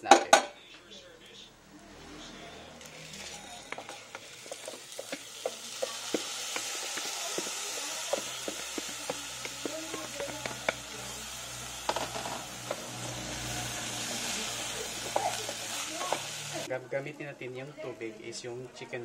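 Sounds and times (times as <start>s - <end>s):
rice sizzling in fat: 1.2s - 16.7s
wooden spatula scraping pan: 2.8s - 16.7s.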